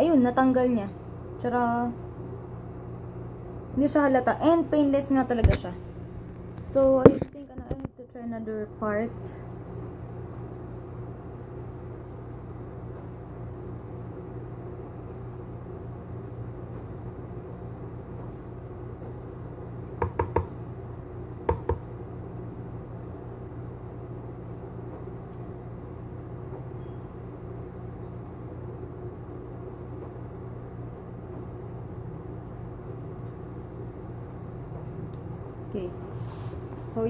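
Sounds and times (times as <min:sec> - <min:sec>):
steady low hum: 0:00.0 - 0:37.0.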